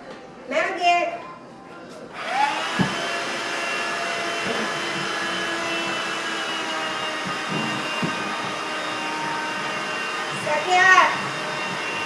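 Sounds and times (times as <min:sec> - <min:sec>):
handheld vacuum cleaner running: 0:02.1 - 0:12.0.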